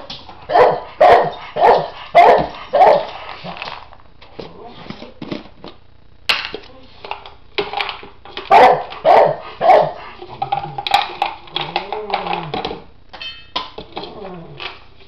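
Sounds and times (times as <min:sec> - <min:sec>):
dog barking: 0:00.5 - 0:03.1, 0:08.5 - 0:10.0.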